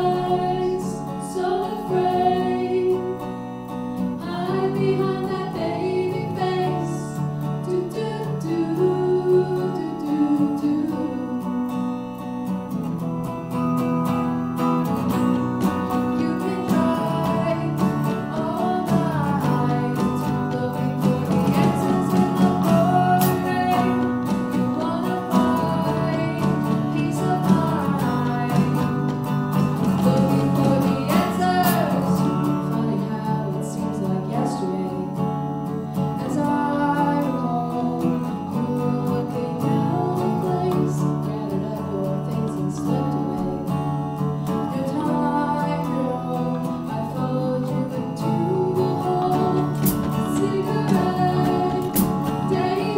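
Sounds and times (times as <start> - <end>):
woman singing: 0.0 - 11.8, 15.3 - 52.9
electric guitar: 0.0 - 52.9
drum kit with cymbals: 49.6 - 52.8.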